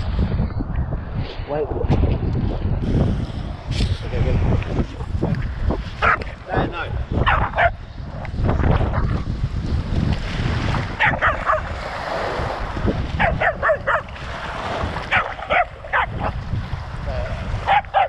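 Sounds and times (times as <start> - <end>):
wind rumble on camera: 0.0 - 18.0
dog barking: 6.0 - 6.3, 7.2 - 7.8, 11.0 - 11.8, 13.2 - 14.2, 15.1 - 16.4, 17.7 - 18.0
splashing surf: 8.3 - 18.0.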